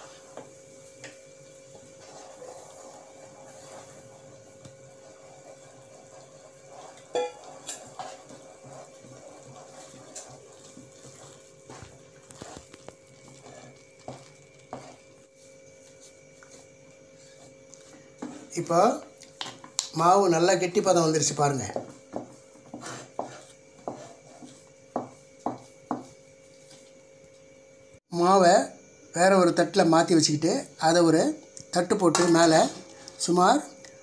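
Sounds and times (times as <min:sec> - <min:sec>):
wooden spatula scraping metal pan: 0:02.0 - 0:04.1, 0:05.0 - 0:15.0, 0:22.7 - 0:24.6.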